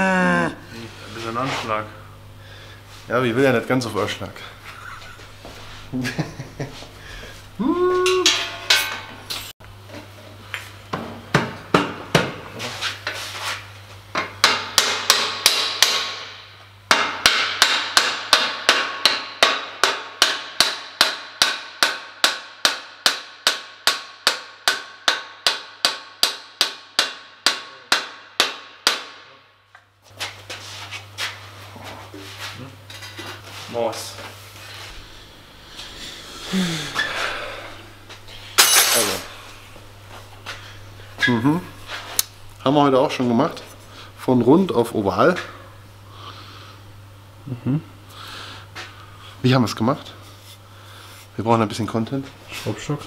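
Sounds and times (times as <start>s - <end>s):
hammer striking steel: 8.2s - 9.2s, 14.4s - 29.5s, 38.6s - 39.3s.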